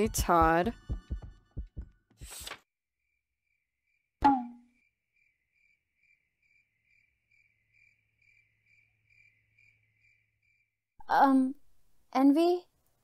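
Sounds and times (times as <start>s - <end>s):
cricket chirping: 3.1s - 10.8s.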